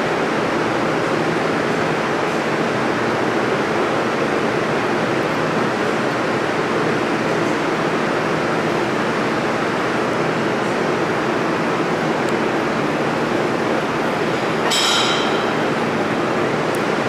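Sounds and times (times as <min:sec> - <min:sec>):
subway train rumbling: 0:00.0 - 0:17.0.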